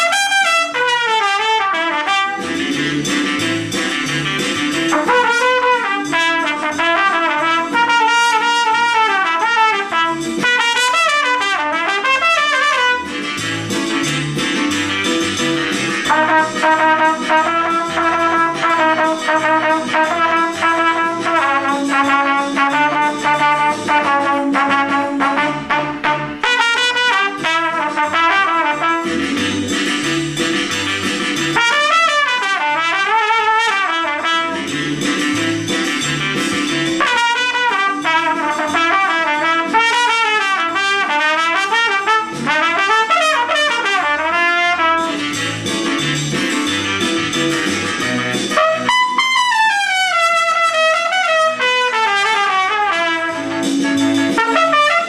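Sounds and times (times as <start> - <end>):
trumpet playing jazzy melody: 0.0 - 13.5, 16.0 - 30.0, 31.4 - 34.9, 36.9 - 45.6, 48.2 - 55.0
backing track with bass line: 0.0 - 55.0.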